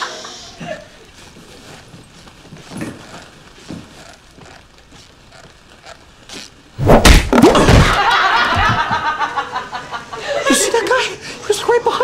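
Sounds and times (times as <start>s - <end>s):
loud heavy thump: 6.8s - 8.7s.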